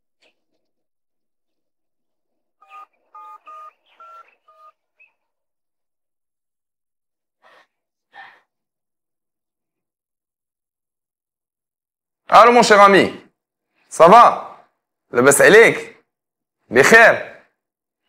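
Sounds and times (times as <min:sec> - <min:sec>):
phone keypad beeps: 0:02.6 - 0:04.8.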